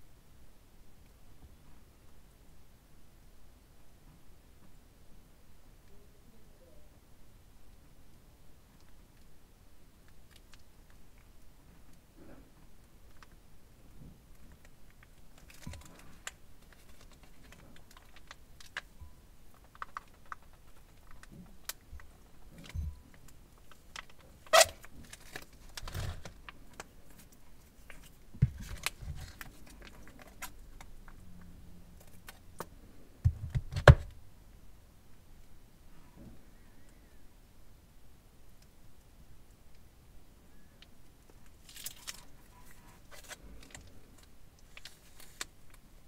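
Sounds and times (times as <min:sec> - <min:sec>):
plastic bags crinkling: 0:41.6 - 0:45.5.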